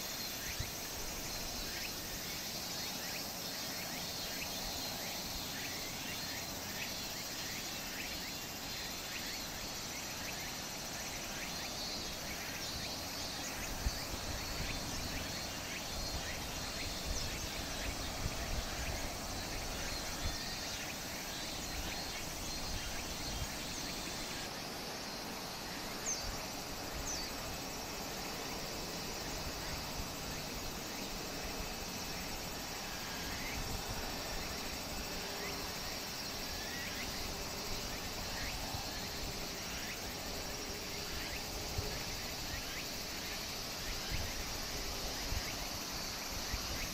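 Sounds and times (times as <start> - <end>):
high insect buzz: 0.0 - 46.9
wind rumbling on microphone: 13.5 - 24.4.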